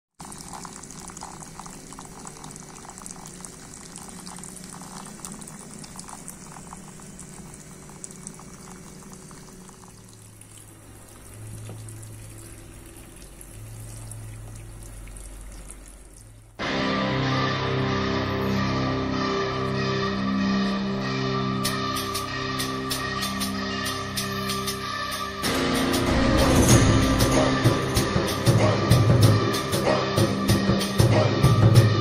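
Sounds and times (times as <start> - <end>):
low hum: 23.6 - 29.6.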